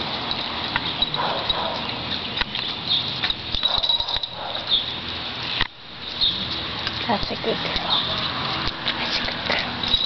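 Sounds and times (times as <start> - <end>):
outdoor background hiss: 0.0 - 10.0
dog claws clicking on concrete: 0.3 - 4.9.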